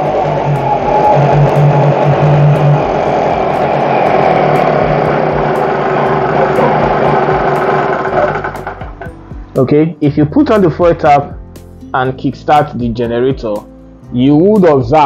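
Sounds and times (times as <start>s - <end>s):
portable generator engine running: 0.0s - 9.5s.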